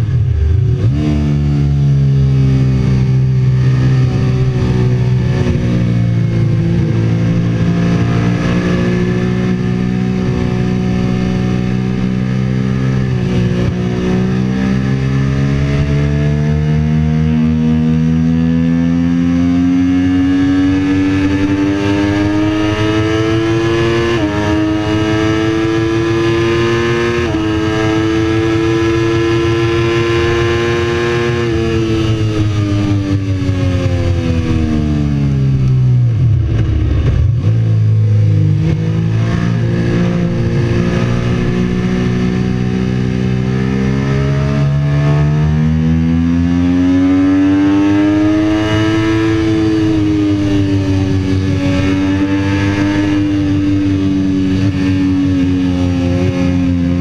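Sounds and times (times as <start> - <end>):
motorcycle engine revving: 0.0 - 57.0
wind rush: 32.1 - 42.5.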